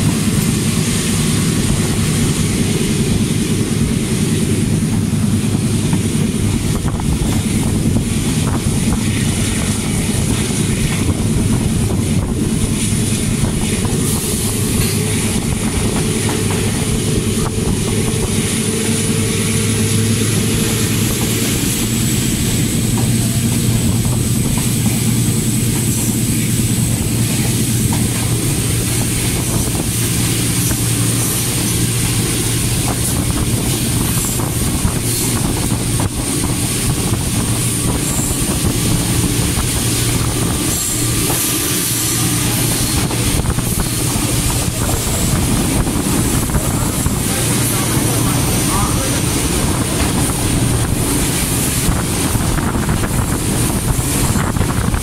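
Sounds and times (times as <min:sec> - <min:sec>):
locomotive engine drone: 0:00.0 - 0:55.0
train in motion: 0:00.0 - 0:55.0.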